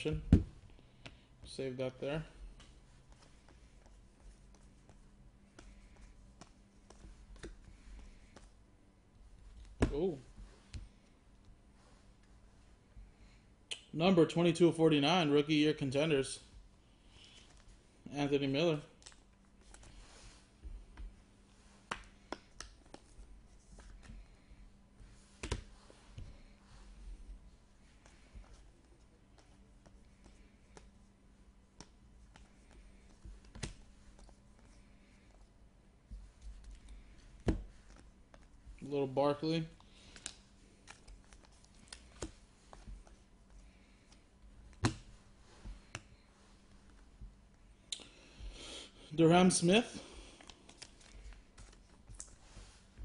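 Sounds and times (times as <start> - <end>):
cards clicking and snapping: 21.9 - 23.1, 39.8 - 42.9.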